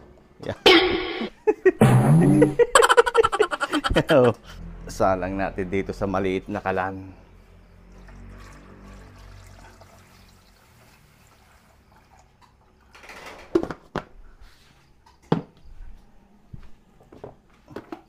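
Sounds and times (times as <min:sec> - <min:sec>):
water pouring into pot: 0:07.9 - 0:12.2.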